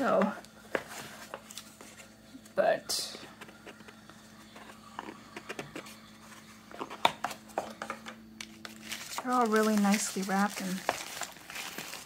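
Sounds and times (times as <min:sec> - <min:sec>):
paper wrapping rustling: 0:08.4 - 0:12.0.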